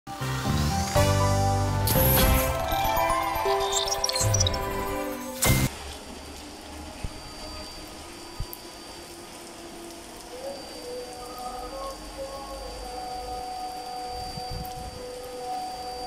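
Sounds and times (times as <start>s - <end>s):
loud music sting hit: 0.3s - 3.6s
heavy rain on flooded street: 5.7s - 16.0s.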